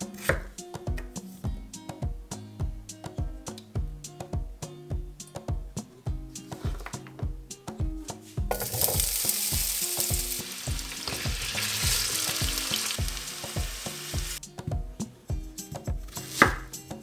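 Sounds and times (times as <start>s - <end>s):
potatoes sizzling in hot oil: 8.5s - 14.4s.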